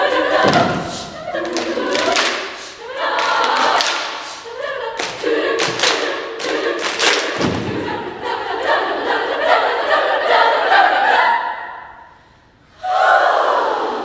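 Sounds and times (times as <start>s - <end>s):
women's choir singing: 0.0s - 14.0s
sharp hand claps: 3.2s - 4.3s.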